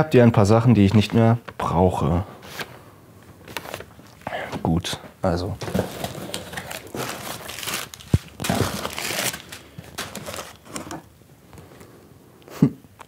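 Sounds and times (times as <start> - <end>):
paper rustling and crinkling: 3.4 - 4.6, 5.4 - 11.8.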